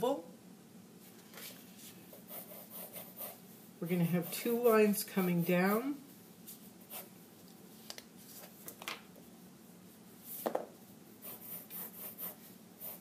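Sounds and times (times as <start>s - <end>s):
pencil scratching on paper: 2.1s - 3.4s, 6.8s - 7.1s, 11.2s - 13.0s.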